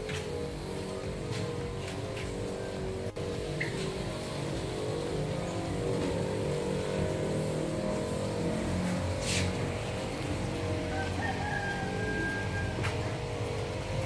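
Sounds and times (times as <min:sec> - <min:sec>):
low mechanical hum: 0:00.0 - 0:14.0
short hiss: 0:09.2 - 0:09.6
rooster crowing: 0:10.5 - 0:13.4.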